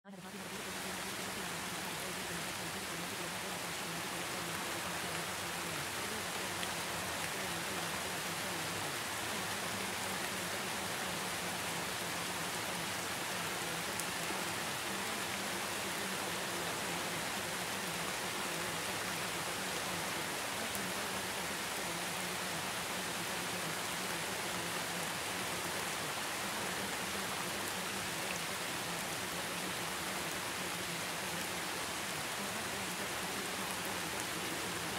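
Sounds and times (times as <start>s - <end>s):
steady rain-like hiss: 0.1s - 34.9s.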